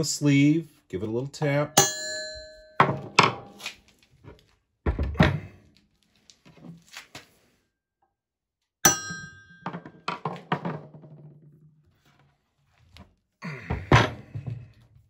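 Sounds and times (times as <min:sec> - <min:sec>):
hammer tapping chisel on metal: 0:01.8 - 0:03.5.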